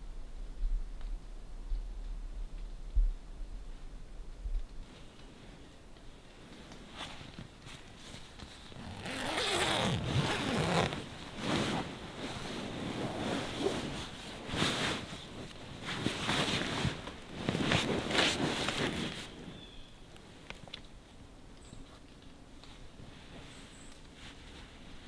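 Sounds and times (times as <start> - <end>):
fabric rustling: 4.9 - 19.6
zipper rasping open: 8.6 - 11.9.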